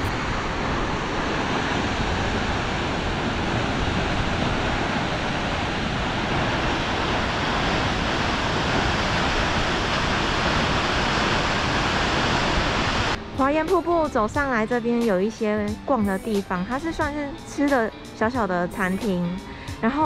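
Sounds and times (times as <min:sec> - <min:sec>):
waterfall rushing: 0:00.0 - 0:13.4.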